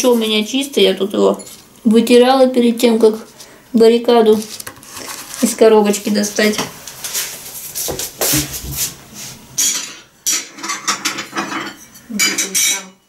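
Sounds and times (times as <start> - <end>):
dishes and utensils clinking: 9.6 - 13.0.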